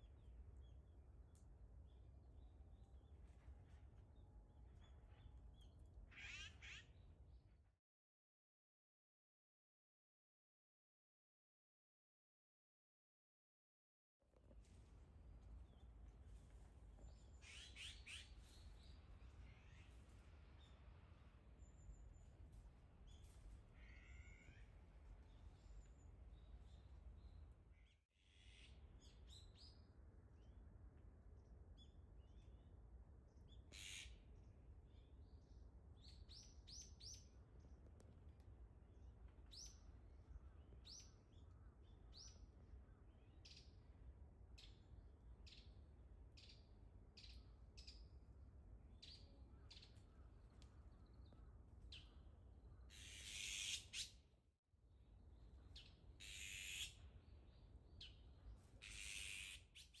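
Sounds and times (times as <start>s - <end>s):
harsh rasping bird calls: 6.1s - 6.9s, 33.7s - 34.2s, 52.9s - 54.1s, 56.2s - 57.0s, 58.8s - 60.0s.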